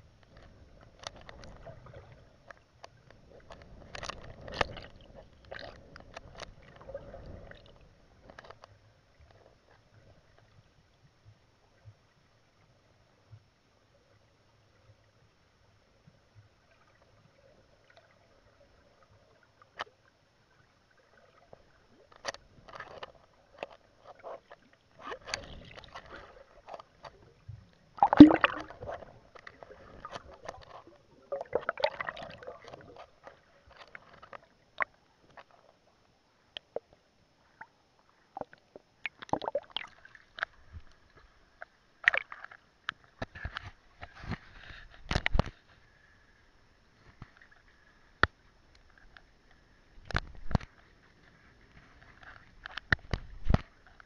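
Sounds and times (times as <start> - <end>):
muffled underwater knocks and clicks: 0.1 - 7.4, 38.4 - 45.7, 50.0 - 50.9, 51.7 - 54.0
water sloshing: 21.0 - 35.7.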